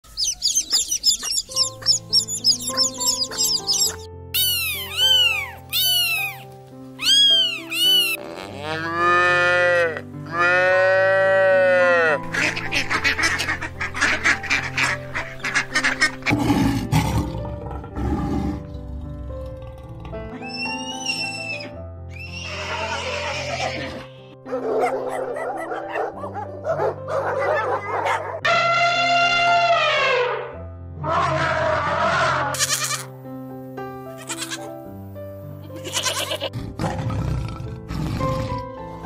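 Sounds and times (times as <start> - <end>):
chicks peeping: 0.0 - 6.4, 7.0 - 8.2
background music: 0.1 - 39.0
cow mooing: 8.2 - 12.3
lion roaring: 36.6 - 38.7.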